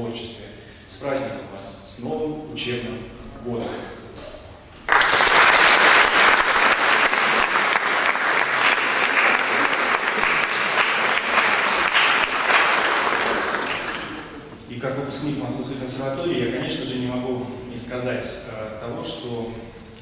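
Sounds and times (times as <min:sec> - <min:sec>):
audience applauding: 0:04.8 - 0:14.5.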